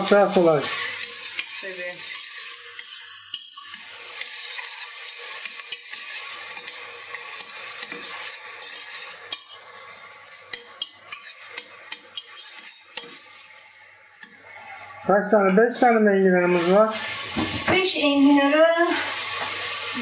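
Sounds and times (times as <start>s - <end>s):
onions sizzling in oil: 0.0s - 20.0s
spoon scraping a metal pot: 0.6s - 13.4s.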